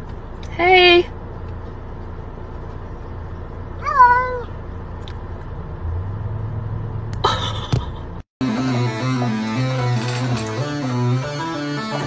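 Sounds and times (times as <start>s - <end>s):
low hum inside car: 0.0s - 8.2s.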